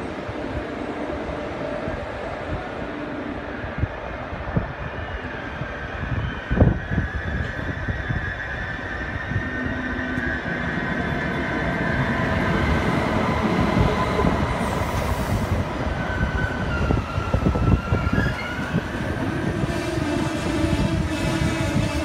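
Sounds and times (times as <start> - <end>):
train wheels rumbling on rails: 0.0 - 22.0
high squeal of train brakes: 4.8 - 12.4, 14.5 - 22.0.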